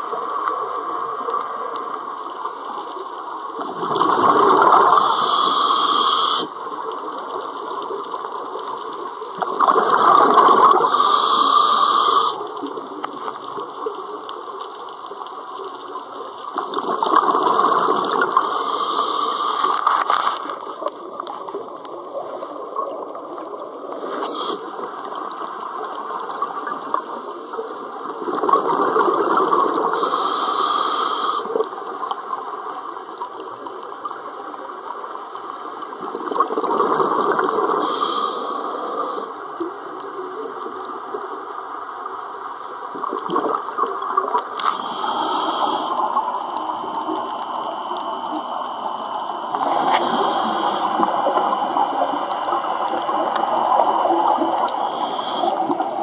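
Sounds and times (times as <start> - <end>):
exhaled breath bubbling underwater: 3.5 - 6.6, 9.3 - 12.9, 16.6 - 19.9, 26.2 - 32.1, 35.7 - 40.5, 42.8 - 56.0
diver breathing: 4.9 - 6.6, 10.8 - 12.5, 18.3 - 19.9, 23.8 - 24.7, 30.0 - 31.6, 37.8 - 39.4, 44.6 - 46.4, 49.5 - 51.6, 54.6 - 56.0.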